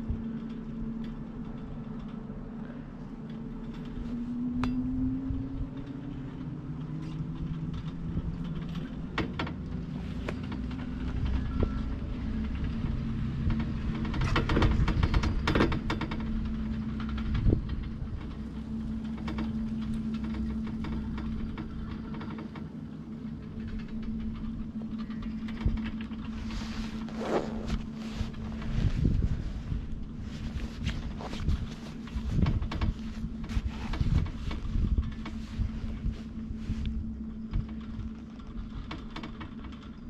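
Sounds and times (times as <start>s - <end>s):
chairlift mechanical hum: 0.0s - 40.0s
clattering rattle: 12.4s - 35.7s.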